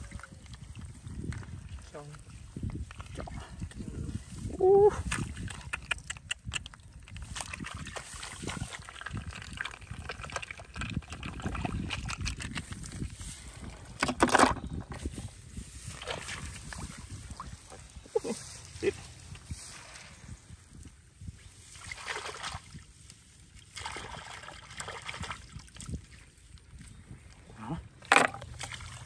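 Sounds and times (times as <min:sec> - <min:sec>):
squelching in mud and water: 0:00.0 - 0:29.0
hands rustling dry stalks: 0:12.4 - 0:14.0, 0:14.8 - 0:21.8
snails clattering into plastic bucket: 0:13.8 - 0:15.0, 0:28.0 - 0:29.0.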